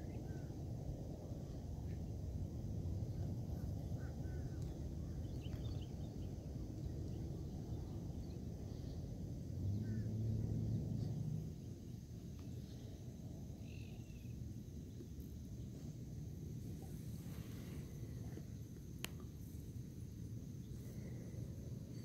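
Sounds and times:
faint bird chirps: 3.1 - 9.0, 9.6 - 15.9.

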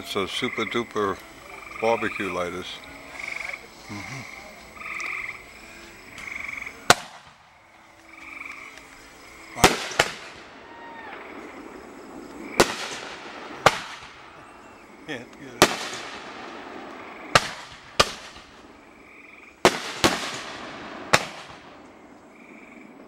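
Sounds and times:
frogs trilling: 0.0 - 20.8, 21.4 - 23.0
fireworks bangs with echo: 6.2 - 7.6, 9.5 - 19.0, 19.6 - 22.2.

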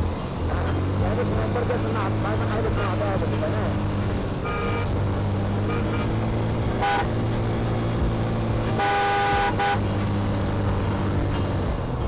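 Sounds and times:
motorcycle running: 0.0 - 12.0
vehicle horn tooting: 4.4 - 4.9, 6.8 - 7.1, 8.7 - 9.9.

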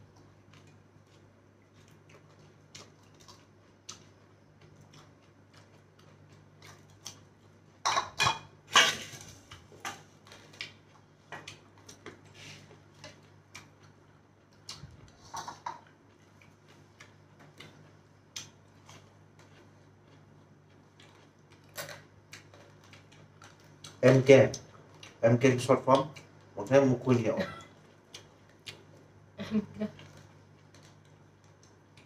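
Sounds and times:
faint low hum: 0.0 - 32.0
chewing and lip smacks: 0.1 - 7.3, 9.5 - 15.2, 15.8 - 25.2, 27.7 - 29.1.

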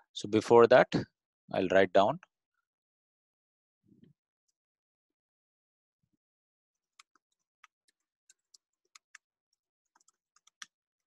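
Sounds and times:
keyboard typing: 6.8 - 11.0.

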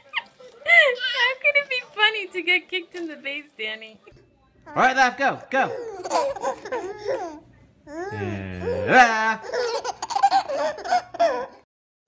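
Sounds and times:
babies laughing: 5.6 - 7.4, 8.0 - 11.6.

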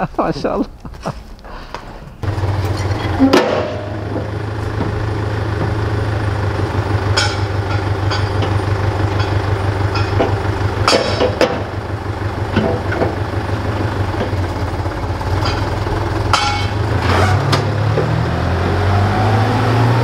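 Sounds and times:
truck engine starting and idling: 1.8 - 20.0
sharp clanks: 2.2 - 18.2.

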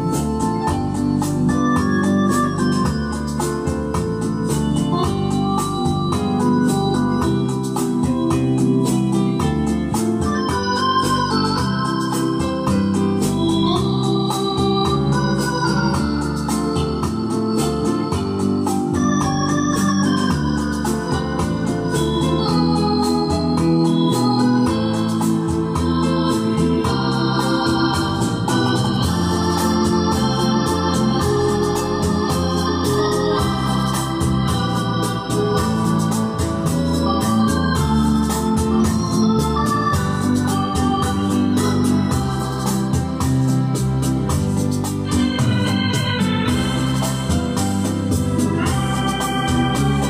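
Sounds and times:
organ chords: 0.0 - 50.0.

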